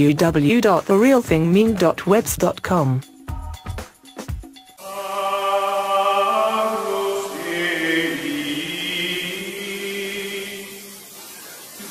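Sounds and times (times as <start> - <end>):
choir chanting long notes: 4.8 - 11.2.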